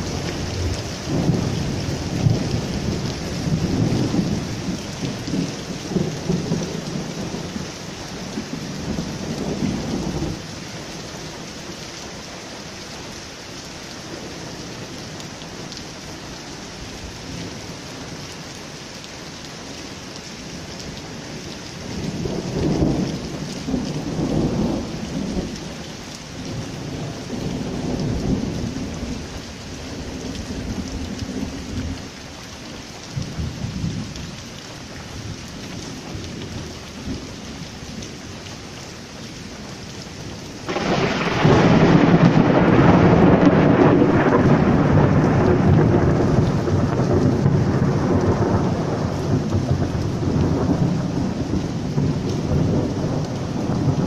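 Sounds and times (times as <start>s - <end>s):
thunder rumbling: 0.0s - 10.4s, 22.0s - 25.8s, 40.6s - 54.0s
heavy rain on paving: 0.0s - 54.0s
loud thunderclap: 40.7s - 54.0s.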